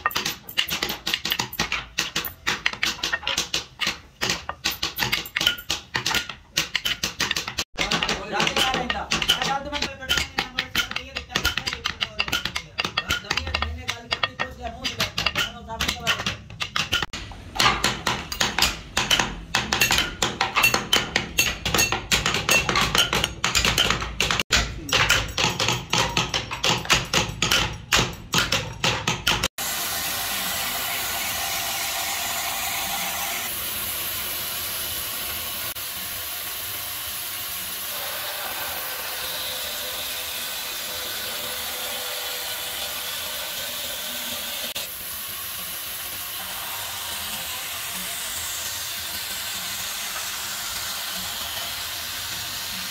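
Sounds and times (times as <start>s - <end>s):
mallet tapping chisel into wood: 0.0s - 29.5s
band saw whirring: 29.6s - 52.9s.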